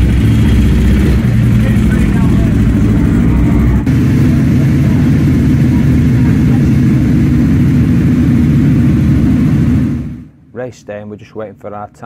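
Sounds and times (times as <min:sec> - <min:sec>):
motorcycle engine idling: 0:00.0 - 0:09.2.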